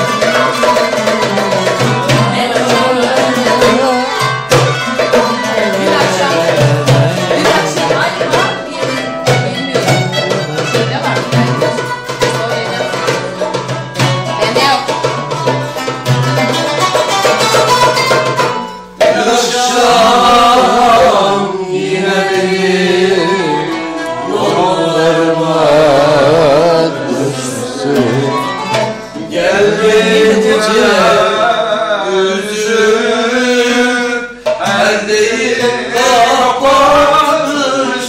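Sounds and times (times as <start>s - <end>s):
hand drum: 0.0s - 31.5s, 32.4s - 38.0s
person singing ornamented melody: 19.2s - 32.5s.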